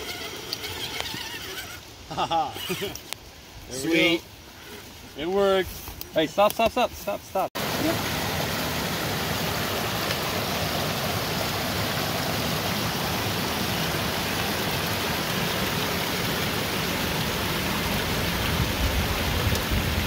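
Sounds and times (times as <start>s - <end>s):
flowing water rushing: 7.0s - 20.0s.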